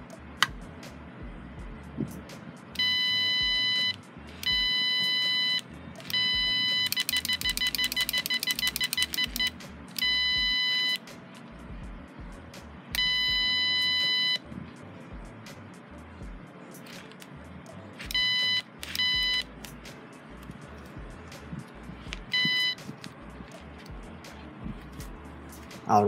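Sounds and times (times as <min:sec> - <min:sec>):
piezo buzzer alarm beeps: 0:02.8 - 0:11.0, 0:13.0 - 0:14.4, 0:18.1 - 0:19.5, 0:22.3 - 0:22.8.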